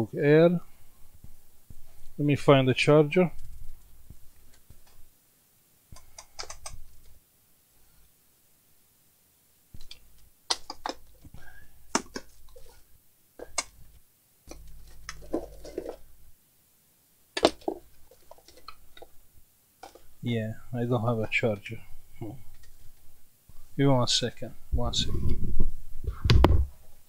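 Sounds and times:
objects clicking and knocking: 0:09.8 - 0:11.3, 0:11.9 - 0:12.8, 0:13.4 - 0:13.9, 0:14.5 - 0:16.0, 0:17.4 - 0:19.2, 0:19.8 - 0:20.1.

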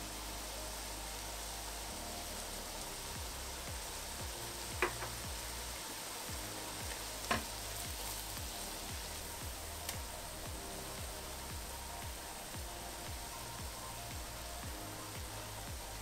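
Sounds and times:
onions sizzling in a pot: 0:00.0 - 0:16.0
sharp knocks on a pot: 0:04.8 - 0:05.1.

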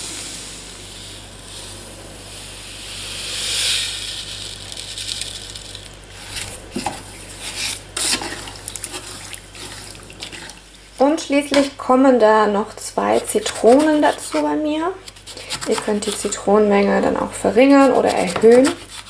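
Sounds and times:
sugar pouring hiss: 0:00.0 - 0:11.0.

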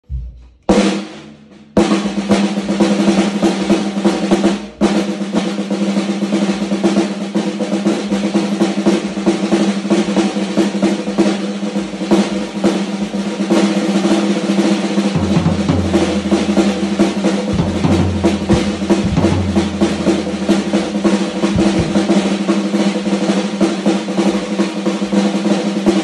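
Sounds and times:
snare drum played with sticks: 0:00.0 - 0:26.0
low thump: 0:17.5 - 0:22.5.

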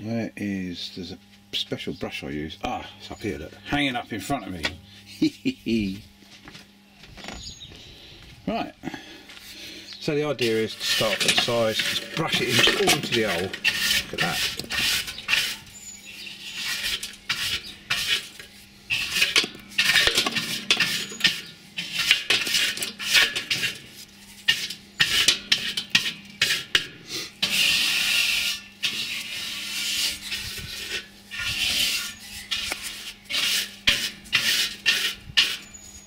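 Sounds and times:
stiff brush scraping metal: 0:10.2 - 0:36.0.

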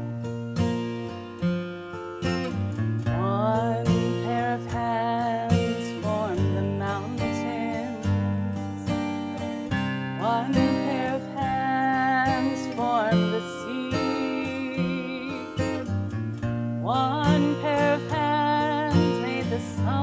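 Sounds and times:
acoustic guitar: 0:00.0 - 0:20.0
country gospel song: 0:03.1 - 0:09.0, 0:10.1 - 0:20.0.

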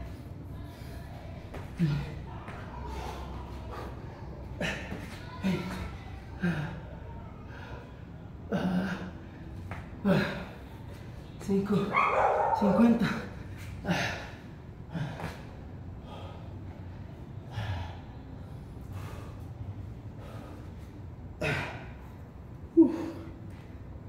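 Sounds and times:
man gasping breaths: 0:17.4 - 0:18.2, 0:18.8 - 0:22.1.

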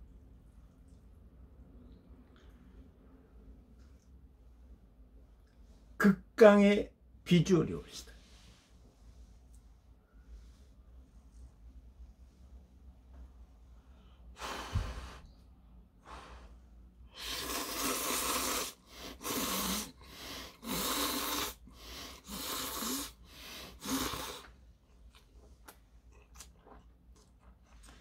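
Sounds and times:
noodles being slurped: 0:17.2 - 0:28.0
soft clicking chewing: 0:24.9 - 0:28.0.

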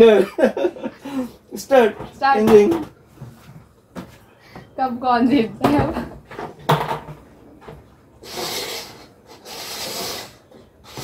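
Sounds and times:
plastic cups scraping on table: 0:08.2 - 0:11.0.

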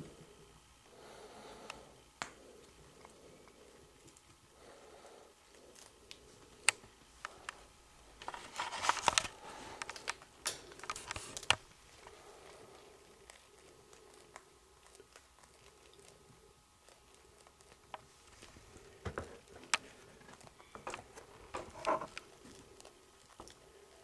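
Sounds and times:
crinkly rustling: 0:03.0 - 0:24.0
chinchillas clicking and scratching: 0:08.2 - 0:24.0.

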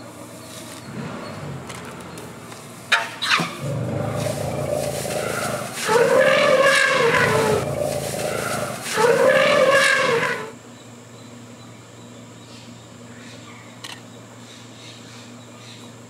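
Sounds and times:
elephant trumpeting: 0:00.9 - 0:10.6.

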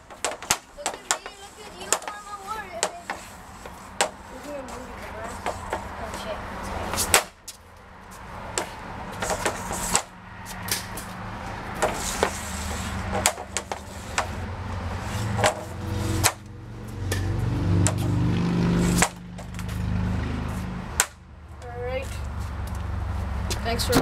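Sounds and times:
hockey stick clacking pucks: 0:00.0 - 0:07.5, 0:08.5 - 0:11.1, 0:11.7 - 0:18.1, 0:18.8 - 0:19.8, 0:21.0 - 0:21.2
vehicle engine hum: 0:00.0 - 0:24.0.

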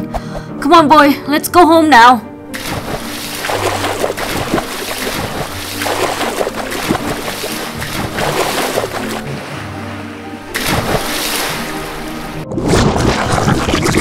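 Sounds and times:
water splashing and rushing: 0:02.5 - 0:14.0.

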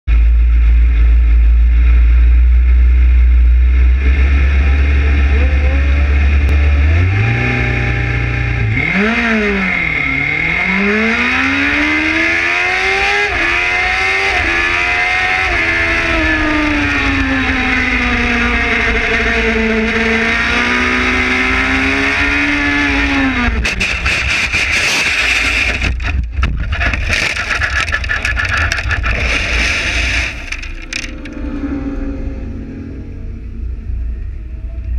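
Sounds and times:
quiet rumble: 0:00.1 - 0:08.8, 0:23.5 - 0:34.9
racing motorcycle engine accelerating: 0:00.1 - 0:34.9
motorcycle crashing and scraping: 0:23.5 - 0:31.6.

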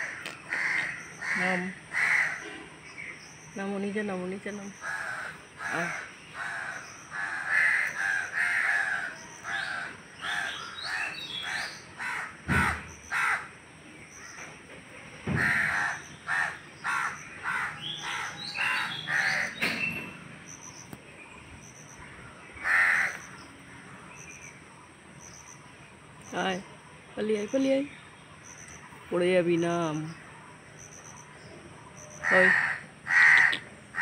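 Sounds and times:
crows cawing: 0:00.0 - 0:02.7, 0:04.8 - 0:13.6, 0:15.2 - 0:19.9, 0:22.0 - 0:24.1, 0:32.2 - 0:34.0.

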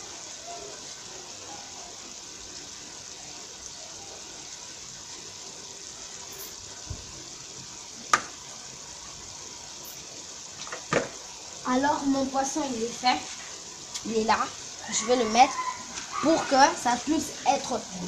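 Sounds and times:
pot boiling: 0:00.0 - 0:18.0.

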